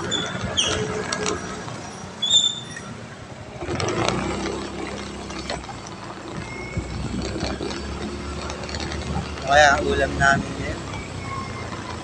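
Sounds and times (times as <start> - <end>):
short high squeak: 0.0 - 3.0
passing vehicle: 0.0 - 12.0
street traffic noise: 0.0 - 12.0.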